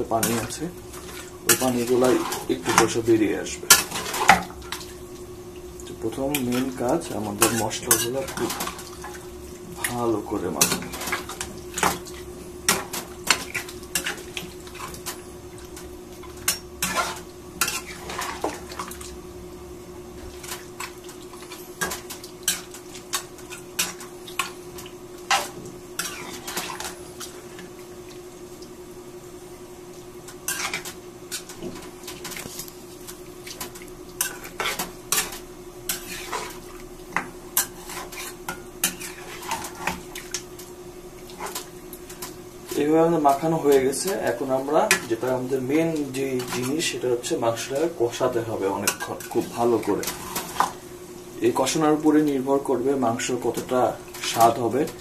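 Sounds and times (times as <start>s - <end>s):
steady low hum: 0.0s - 55.0s
metal spatula scraping frying pan: 16.8s - 18.5s, 35.9s - 36.6s, 37.6s - 40.0s.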